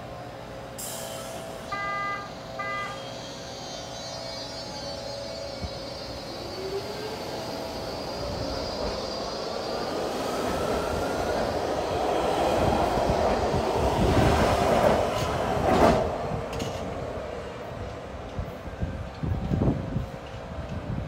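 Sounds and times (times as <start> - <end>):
train rumble and wheel noise: 0.0 - 21.0
loud clack of train: 13.8 - 17.1.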